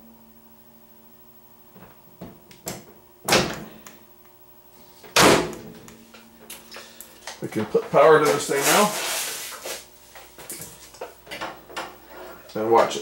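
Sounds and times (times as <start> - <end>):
microwave door thudding shut: 5.2 - 5.7.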